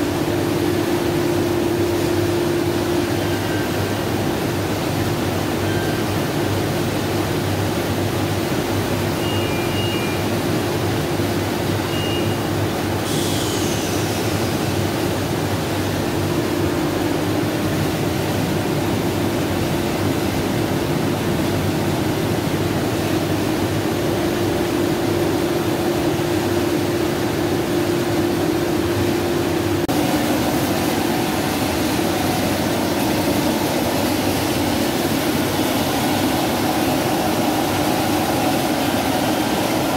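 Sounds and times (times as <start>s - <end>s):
short high beeps: 9.2s - 10.3s, 11.9s - 12.5s.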